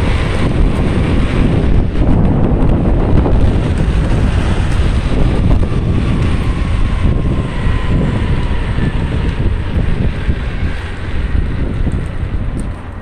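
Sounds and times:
heavy wind on microphone: 0:00.0 - 0:13.0.

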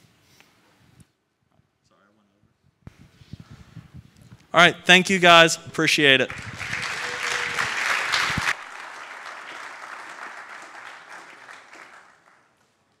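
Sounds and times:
audience applauding: 0:06.0 - 0:12.8.

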